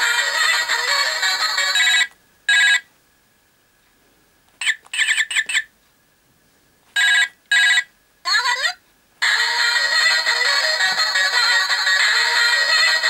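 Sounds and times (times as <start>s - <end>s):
toy telephone electronic ringtone: 7.0s - 7.9s.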